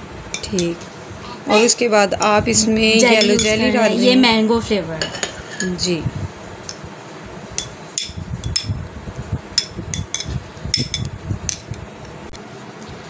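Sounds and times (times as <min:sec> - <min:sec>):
metal spoon clinking on glass: 0:00.4 - 0:00.8, 0:03.1 - 0:03.6.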